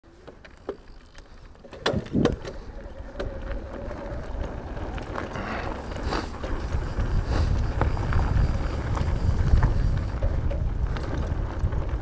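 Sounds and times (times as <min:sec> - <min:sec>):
tyre rumble and rattles: 0:00.1 - 0:12.0
bike knocks and clicks: 0:01.6 - 0:03.4
wind on microphone: 0:01.8 - 0:12.0.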